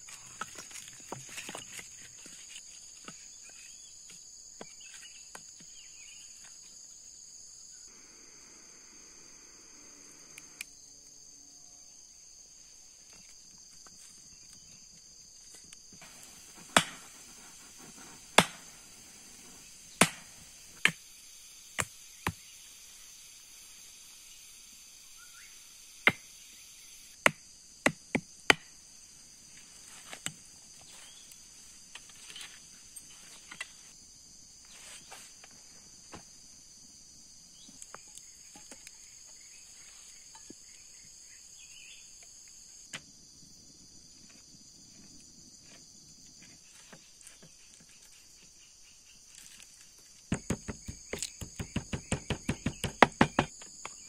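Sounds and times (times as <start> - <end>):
crickets and insects chirring: 0.0 - 54.0
hand tool striking wood: 16.0 - 18.8, 20.0 - 21.0, 27.2 - 28.7, 50.3 - 54.0.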